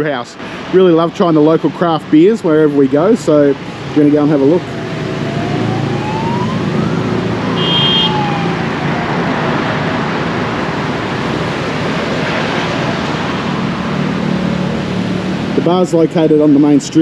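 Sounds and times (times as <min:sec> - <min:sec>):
road traffic noise: 0:00.0 - 0:17.0
rising and falling whine: 0:03.9 - 0:15.7
short high-pitched beep: 0:07.6 - 0:08.1.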